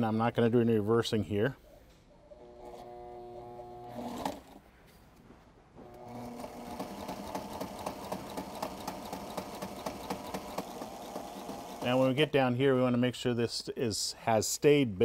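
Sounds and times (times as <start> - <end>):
sewing machine stitching: 2.4 - 4.6, 5.8 - 12.1.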